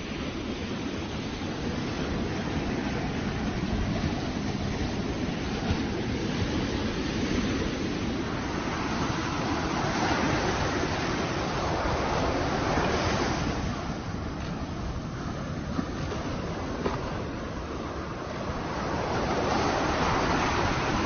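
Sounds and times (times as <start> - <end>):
sea surf breaking: 0.0 - 21.0.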